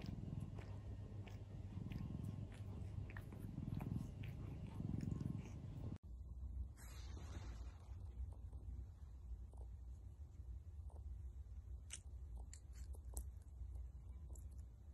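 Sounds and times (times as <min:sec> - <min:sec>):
cat purring: 0:00.0 - 0:06.0.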